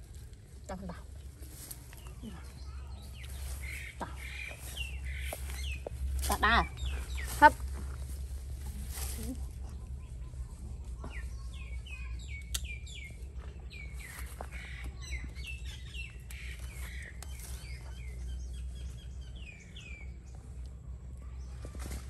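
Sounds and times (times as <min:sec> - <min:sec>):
steady low rumble: 0:00.0 - 0:22.0
small bird chirping: 0:08.9 - 0:20.3.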